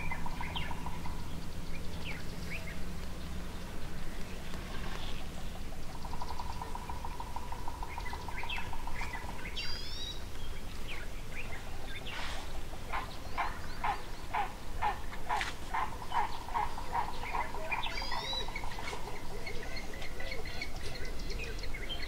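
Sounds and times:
loud repeated bird calls: 0.0s - 22.0s
bird trilling: 11.4s - 22.0s.

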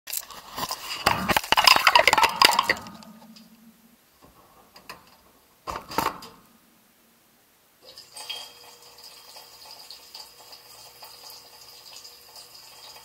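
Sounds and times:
dishware clattering: 1.1s - 3.7s.

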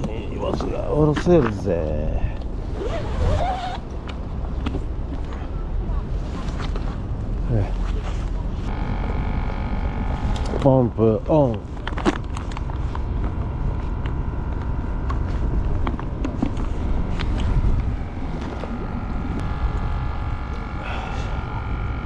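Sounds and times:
electric water pump humming: 8.7s - 22.0s
strong wind on microphone: 13.4s - 22.0s.

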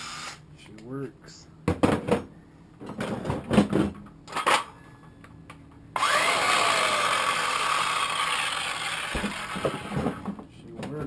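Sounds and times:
circular saw motor whining: 6.0s - 10.0s.

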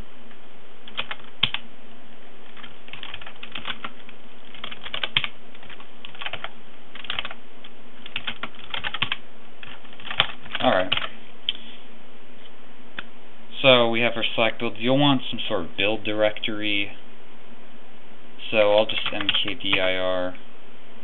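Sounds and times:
background hiss and hum: 0.0s - 21.0s.

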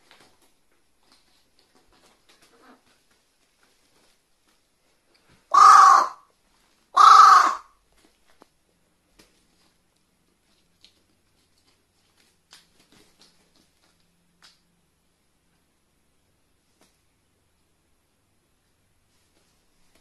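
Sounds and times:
crow cawing: 5.5s - 6.2s, 7.0s - 7.7s.

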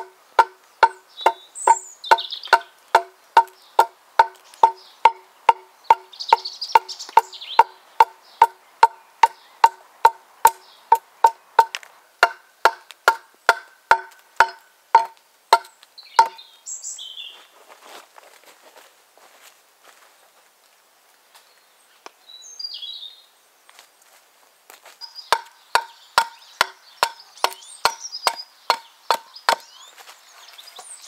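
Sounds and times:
axe chopping wood: 0.0s - 6.1s, 6.8s - 16.4s, 25.3s - 29.7s.

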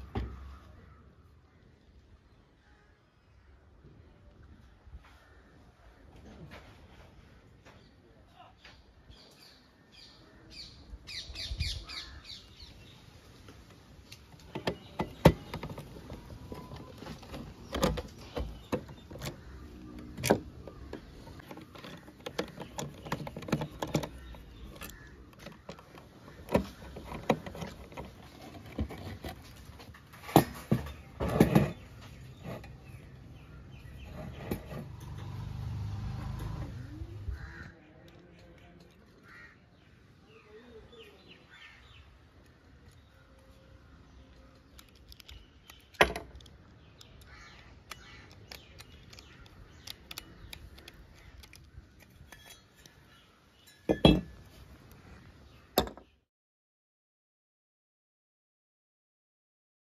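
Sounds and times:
metal parts clinking on wooden table: 53.7s - 54.4s.

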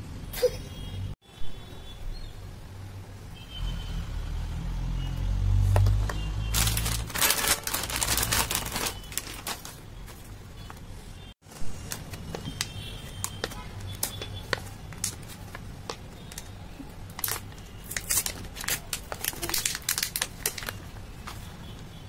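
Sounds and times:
plastic blister pack crinkling: 5.8s - 9.8s, 17.1s - 21.0s.

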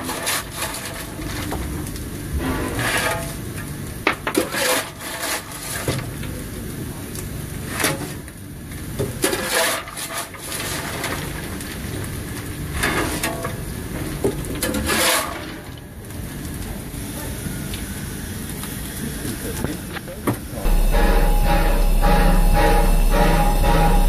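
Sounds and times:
coal shovel scraping: 14.8s - 15.4s
low rumble in the cab: 20.5s - 24.0s.

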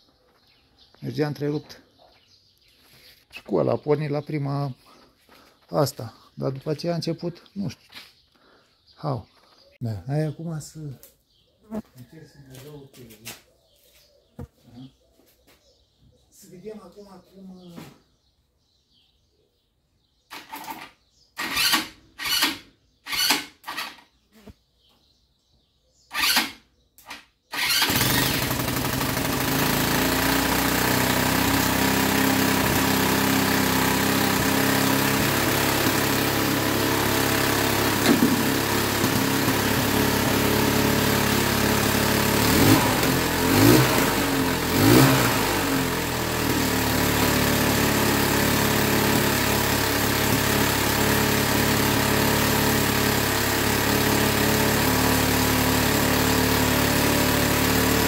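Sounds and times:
atv engine cranking: 20.3s - 24.2s, 26.1s - 58.0s
atv engine idling and revving: 27.6s - 58.0s.

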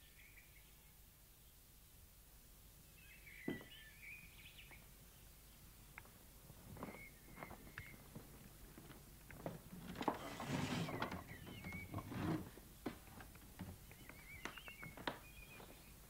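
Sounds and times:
scuffing and light knocks: 6.6s - 15.9s
rustling scuffle: 6.7s - 14.0s.

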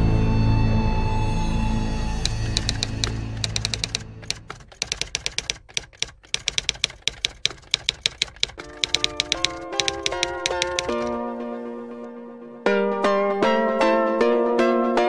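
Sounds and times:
music: 0.0s - 3.4s, 11.1s - 15.0s
typewriter key clacks: 2.2s - 11.2s.

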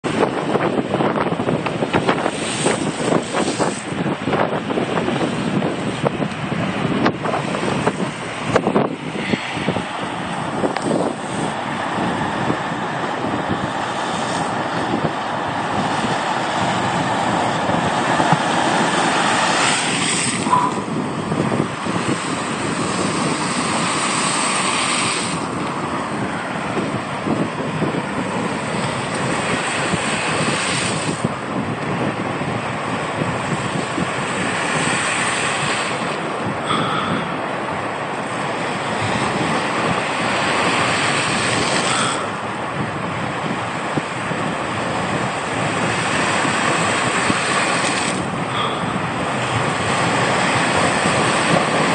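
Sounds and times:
waves crashing on concrete: 0.0s - 51.9s
wind buffeting microphone: 0.0s - 51.9s
splashing spray: 1.5s - 6.1s, 7.2s - 42.6s, 43.4s - 51.9s.

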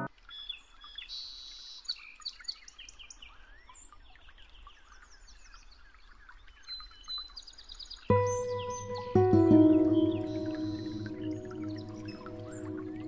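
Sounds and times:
small birds chirping: 8.1s - 13.0s.

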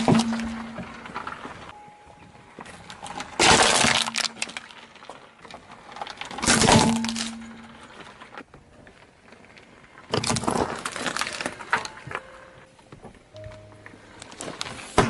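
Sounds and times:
tyre crushing a soda can: 0.0s - 1.4s, 3.3s - 5.2s, 5.8s - 8.2s, 10.1s - 12.0s
plastic toy cracking: 3.1s - 8.4s.

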